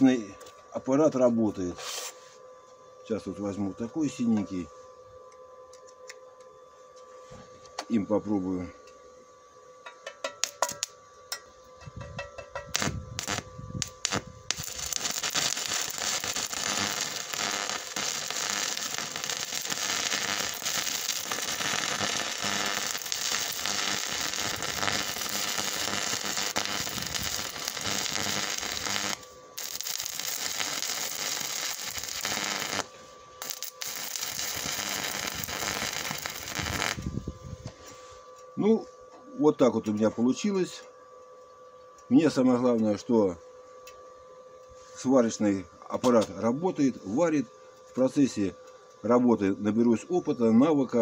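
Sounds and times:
welding arc crackling: 10.0 - 11.0, 12.4 - 37.2.

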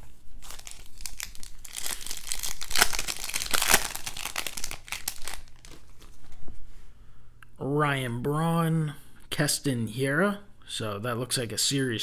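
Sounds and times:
wrapper tearing and crinkling: 0.0 - 6.2.

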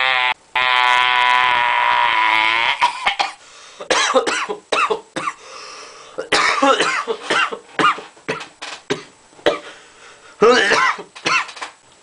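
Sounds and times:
raspy coughs: 2.8 - 5.4, 6.2 - 9.7, 10.5 - 11.6.

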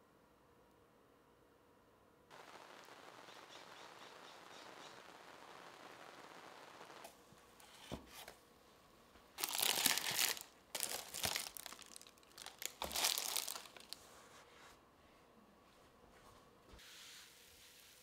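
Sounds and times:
dry material crinkling: 9.4 - 14.1.

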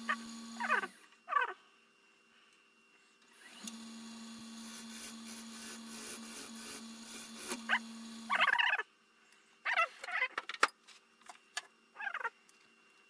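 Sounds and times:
wood lathe humming: 0.0 - 0.9, 3.4 - 8.4
tool cutting spinning wood: 0.0 - 1.0, 3.4 - 8.6.

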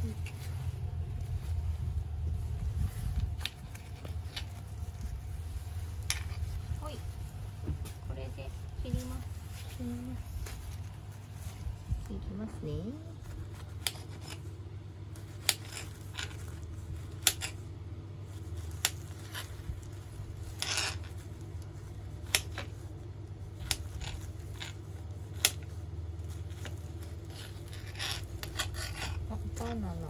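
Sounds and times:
knife scraping: 13.4 - 14.4, 15.4 - 16.4, 20.4 - 21.2, 26.4 - 29.8.

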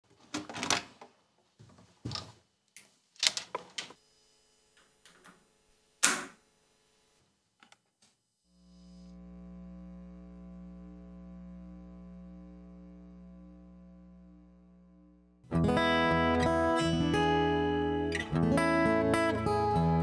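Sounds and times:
sustained low tone: 9.1 - 18.1.

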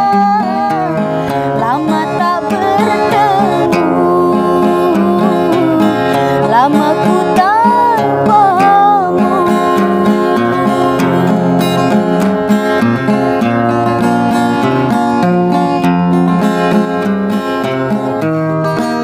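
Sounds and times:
woman singing: 0.0 - 12.0
strummed acoustic guitar: 0.0 - 19.0.

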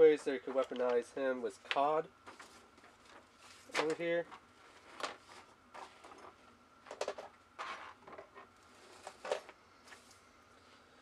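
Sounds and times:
plastic parts clicking and rustling: 5.8 - 9.6.

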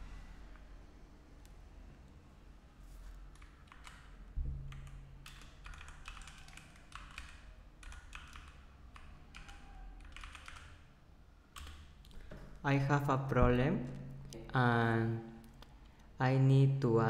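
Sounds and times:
computer keyboard key clicks: 3.3 - 4.1, 4.7 - 10.8, 11.6 - 12.2
low thump: 4.4 - 4.7.

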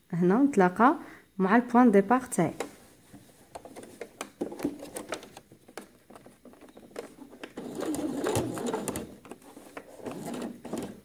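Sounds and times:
sewing machine stitching: 6.9 - 11.0.

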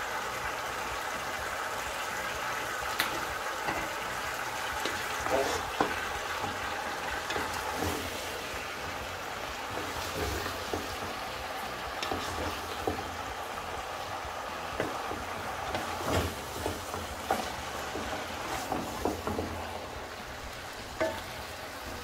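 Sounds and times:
vegetables sizzling in a frying pan: 0.0 - 22.0
spatula knocking against pan: 5.7 - 7.6, 14.8 - 19.6, 21.0 - 22.0.

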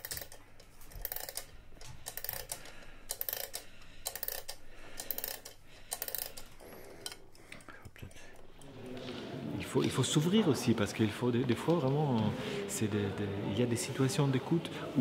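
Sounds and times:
dry mechanical clicking: 0.0 - 7.4.

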